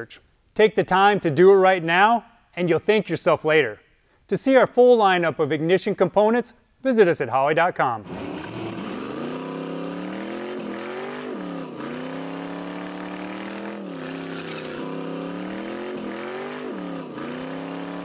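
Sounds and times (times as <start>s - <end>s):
race car engine revving: 8.0s - 18.0s.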